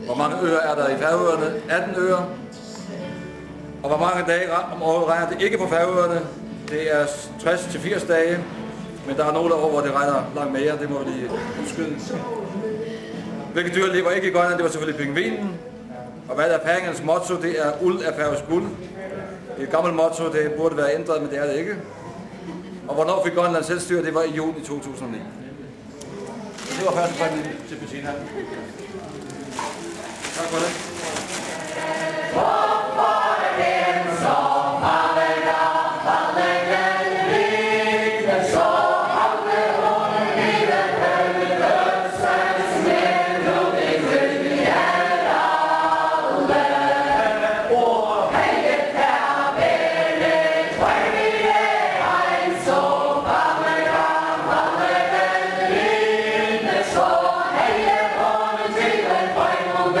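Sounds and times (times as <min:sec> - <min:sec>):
group singing unaccompanied: 0:30.2 - 1:00.0.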